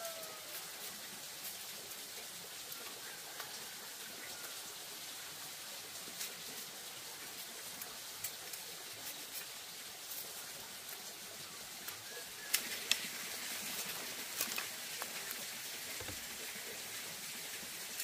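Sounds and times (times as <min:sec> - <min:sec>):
outdoor background hiss: 0:00.0 - 0:18.0
bamboo strips clicking: 0:11.8 - 0:16.4.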